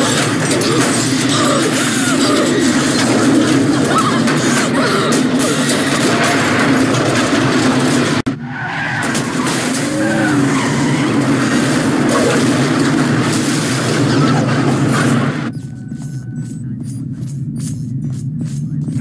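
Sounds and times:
loud rush of fire: 0:09.0 - 0:15.5.

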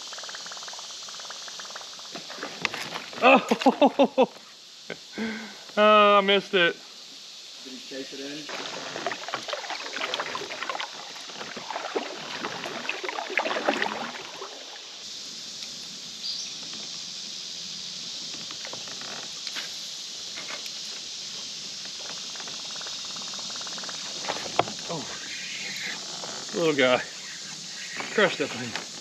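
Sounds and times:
steady high hiss: 0:00.0 - 0:29.0
water splashing: 0:08.2 - 0:15.1.

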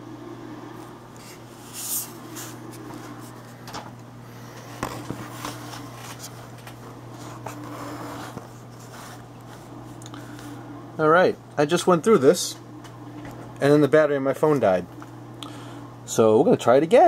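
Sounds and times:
dishwasher humming: 0:00.0 - 0:17.0.

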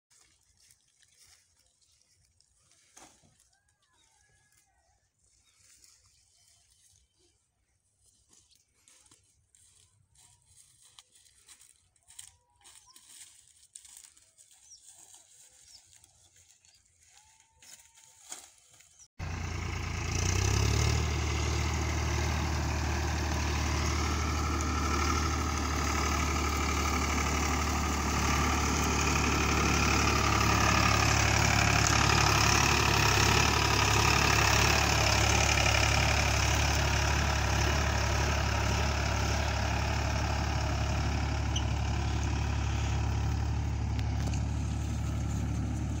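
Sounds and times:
tractor diesel engine under load: 0:19.1 - 0:46.0.

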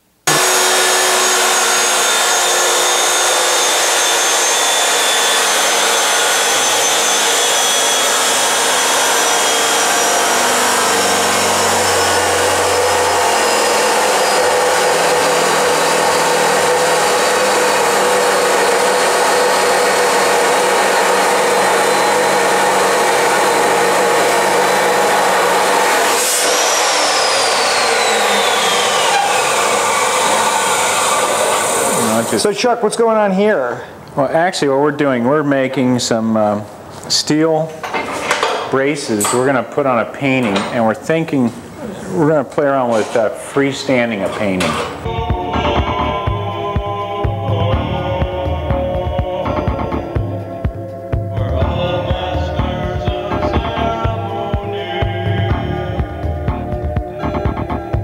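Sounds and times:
chop saw grinding steel: 0:00.3 - 0:32.4.

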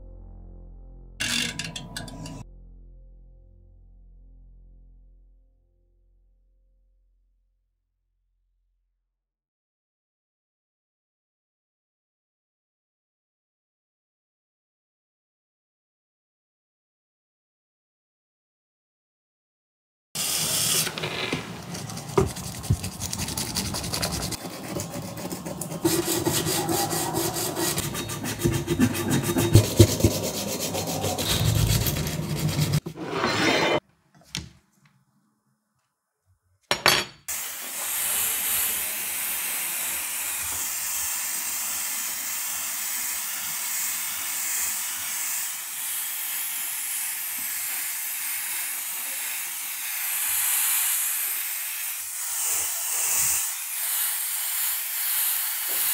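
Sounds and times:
spray paint hissing: 0:20.2 - 0:32.8, 0:37.3 - 0:55.9
sanding plastic: 0:20.2 - 0:33.1, 0:37.6 - 0:55.9.

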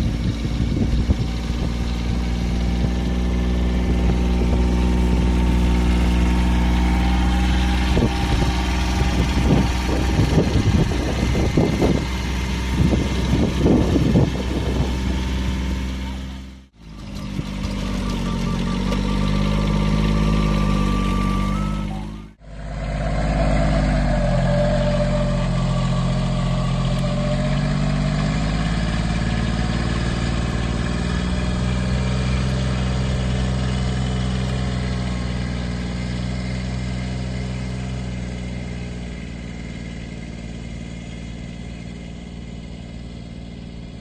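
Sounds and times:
utility vehicle engine running: 0:00.0 - 0:44.0.

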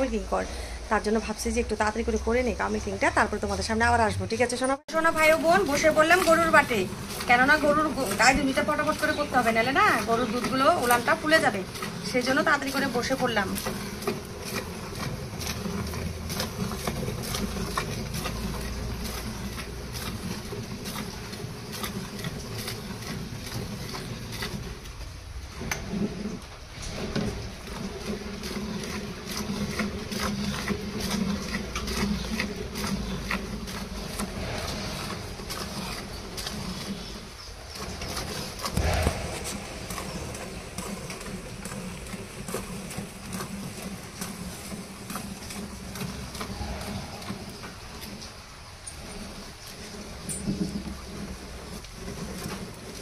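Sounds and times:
milk squirting into steel bucket: 0:05.2 - 0:53.0.

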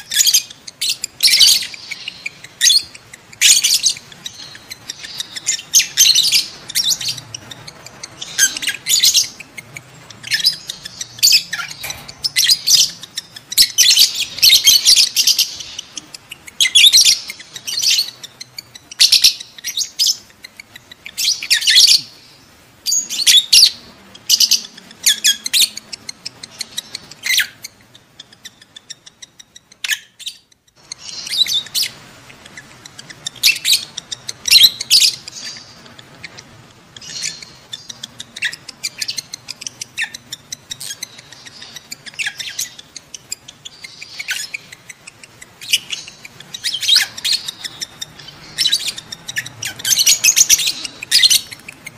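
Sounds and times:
lovebirds shrill chirps: 0:00.0 - 0:51.9.

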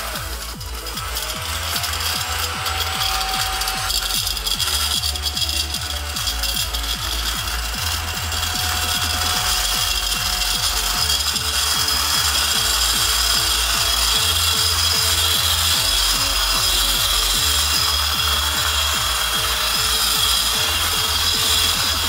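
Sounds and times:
mini vacuum fan whine: 0:00.0 - 0:22.0
vacuum rubbing on desk: 0:00.0 - 0:22.0.

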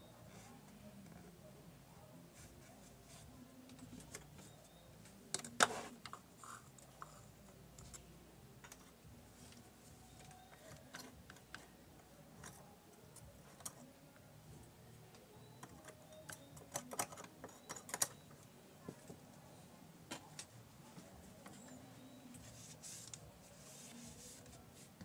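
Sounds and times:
small parts and tools clicking: 0:15.6 - 0:18.5.

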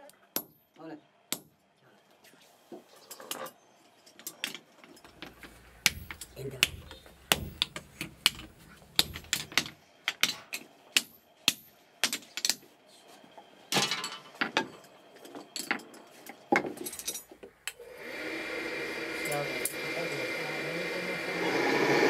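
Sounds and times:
hammers striking metal on anvil: 0:00.3 - 0:00.7, 0:01.3 - 0:01.6, 0:05.2 - 0:12.6
forge air blower whirring: 0:05.1 - 0:09.7, 0:17.6 - 0:22.0.

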